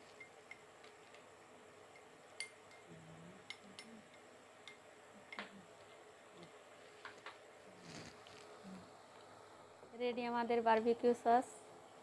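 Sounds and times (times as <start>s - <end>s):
spoon clinking glass bowl: 1.9s - 2.9s.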